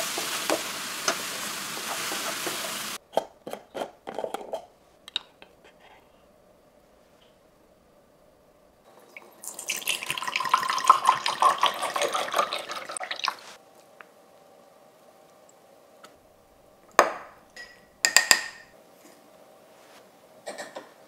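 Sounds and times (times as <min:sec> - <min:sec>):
liquid pouring into glass: 0:09.0 - 0:13.5
metal spoon clinking on glass: 0:17.6 - 0:18.6.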